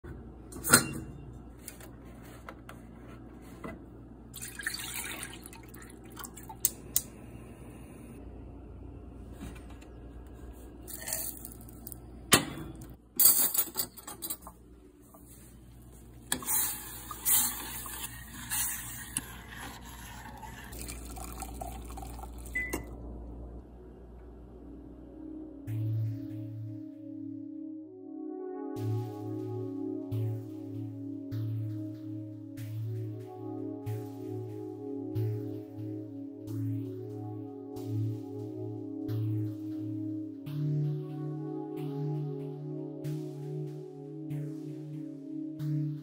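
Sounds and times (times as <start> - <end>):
water pouring and splashing: 4.4 - 6.7.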